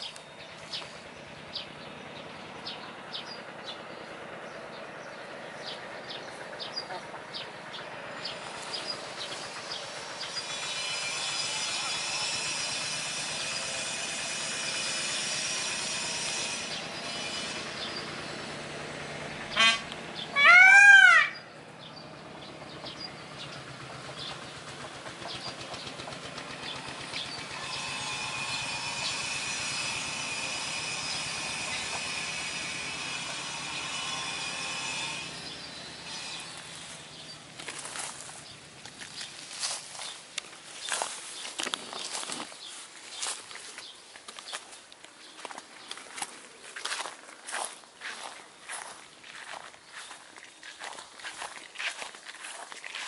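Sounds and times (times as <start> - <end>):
peafowl screaming: 19.6 - 21.5.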